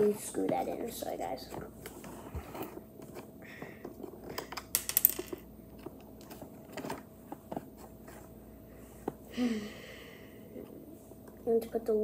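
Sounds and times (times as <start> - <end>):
kit pieces clicking and tapping: 4.2 - 5.4.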